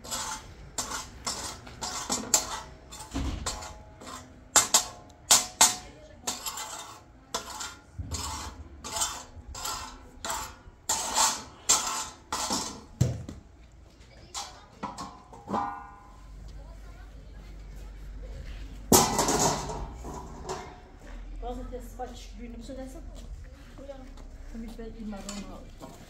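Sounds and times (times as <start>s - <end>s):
metal spatula scraping steel pan: 0.0s - 12.9s, 18.9s - 20.9s.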